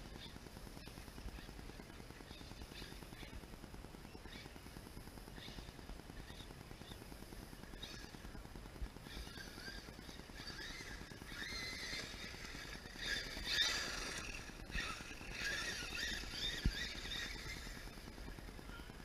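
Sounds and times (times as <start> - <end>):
toy truck motor whining: 9.0 - 18.9.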